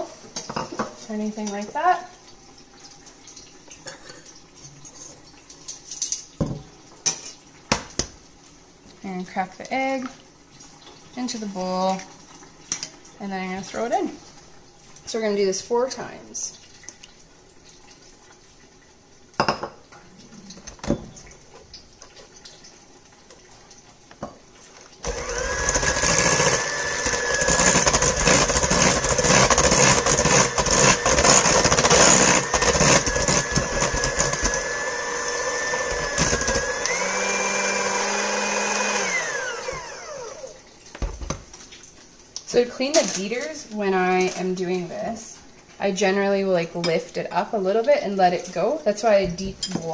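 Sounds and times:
electric hand mixer whining: 0:25.0 - 0:40.6.

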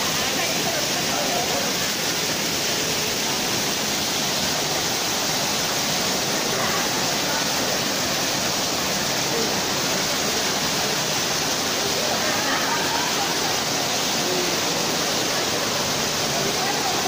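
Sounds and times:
waterfall splashing onto rocks: 0:00.0 - 0:17.0.

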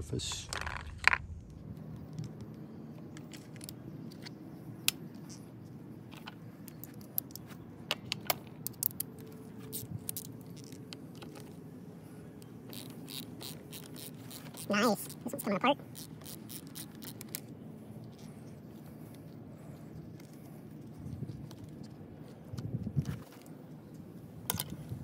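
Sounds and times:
ratchet wrench clicking: 0:12.7 - 0:15.1, 0:15.9 - 0:17.4.

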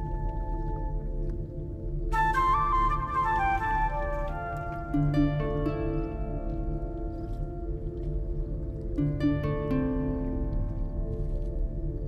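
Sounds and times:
plucked notes over held tones: 0:03.6 - 0:12.0.

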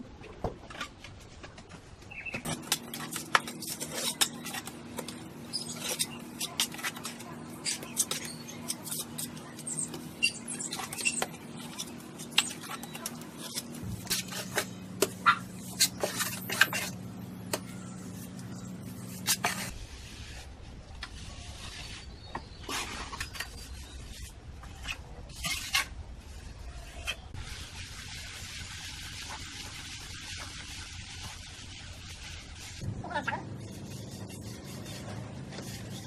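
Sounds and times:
sharp clicks and scrapes: 0:02.4 - 0:19.8
low hum: 0:32.6 - 0:36.0.

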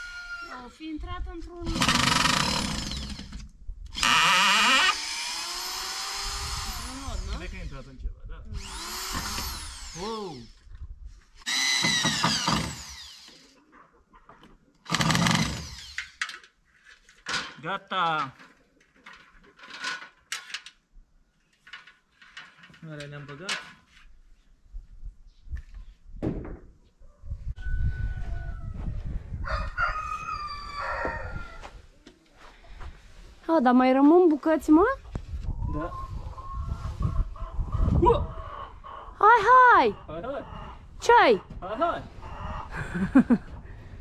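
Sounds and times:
power drill whining into wood: 0:00.0 - 0:00.5, 0:01.7 - 0:07.9, 0:08.5 - 0:10.6, 0:11.4 - 0:13.6, 0:14.8 - 0:16.4
rooster crowing: 0:27.1 - 0:31.8.

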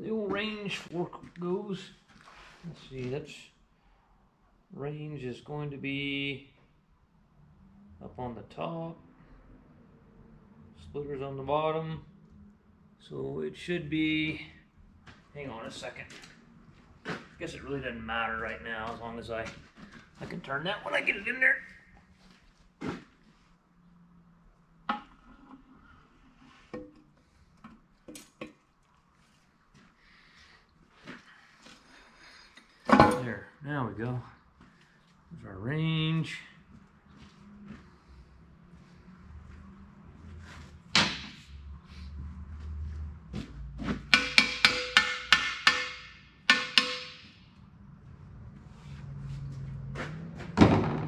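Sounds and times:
metal clanks: 0:32.8 - 0:33.4
hammer striking steel: 0:44.1 - 0:47.4.

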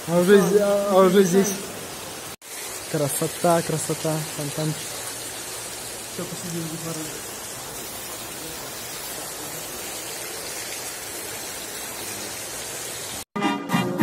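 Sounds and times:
fountain water splashing: 0:00.0 - 0:13.3
music with brass: 0:13.4 - 0:14.0.

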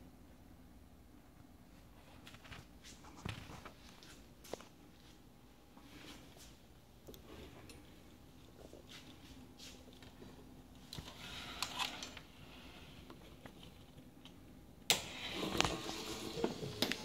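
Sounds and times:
wires rustling and clicking: 0:01.8 - 0:05.2, 0:05.8 - 0:17.0.

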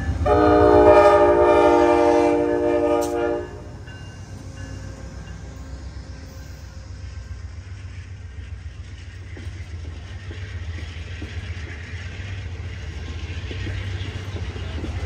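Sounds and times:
train low rumble: 0:00.0 - 0:15.0
train wheels clattering on rails: 0:00.0 - 0:15.0.

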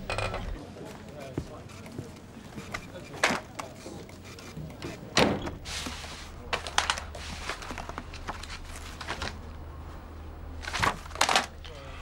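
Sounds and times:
paper rustling and pages flicking: 0:05.7 - 0:09.5, 0:10.6 - 0:11.6.

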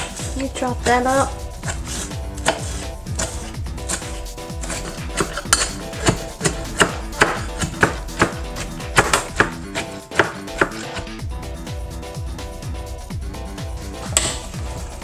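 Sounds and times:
knife chopping on cutting board: 0:00.0 - 0:11.2, 0:14.0 - 0:14.5
background music: 0:00.0 - 0:15.0.

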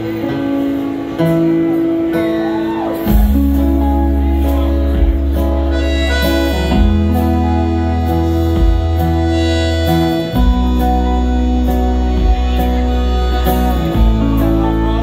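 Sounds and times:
live band playing: 0:00.0 - 0:15.0
accordion holding chords: 0:03.5 - 0:15.0.

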